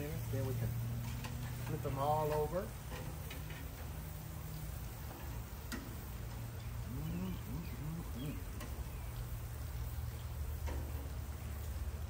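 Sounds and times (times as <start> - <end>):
steady low hum: 0.0 - 12.0
metal tongs clicking on grill: 1.0 - 3.9, 5.1 - 6.1, 8.5 - 8.9, 10.5 - 11.0
faint bird chirps: 6.6 - 9.2.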